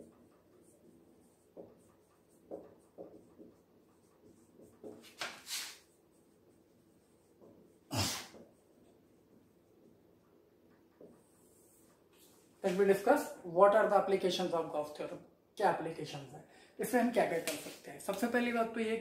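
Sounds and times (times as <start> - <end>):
marker scratching on whiteboard: 0.0 - 13.9.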